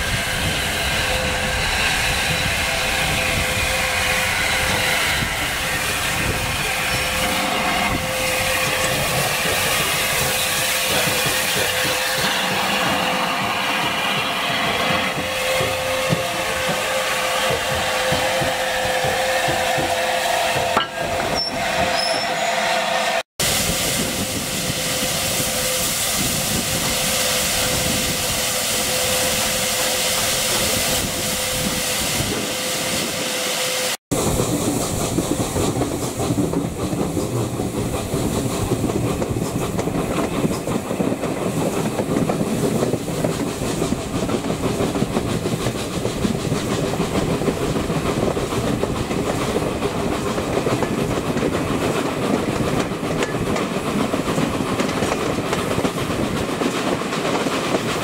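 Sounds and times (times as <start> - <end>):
steam hiss: 0.0 - 20.3, 23.4 - 58.0
train whistling tone: 0.0 - 34.0
train rumble: 0.0 - 58.0.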